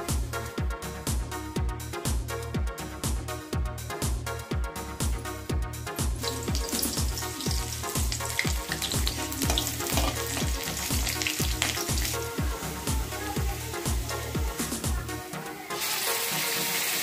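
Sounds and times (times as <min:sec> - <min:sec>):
background music with steady beat: 0:00.0 - 0:17.0
metal spatula stirring: 0:06.2 - 0:12.2
onion sizzling in hot oil: 0:06.2 - 0:15.0, 0:15.6 - 0:17.0.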